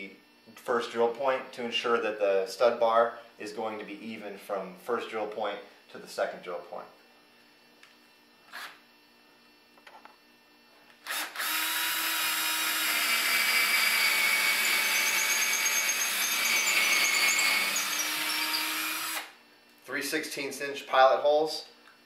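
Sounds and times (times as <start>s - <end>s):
cordless drill drilling into wood: 11.0s - 19.4s.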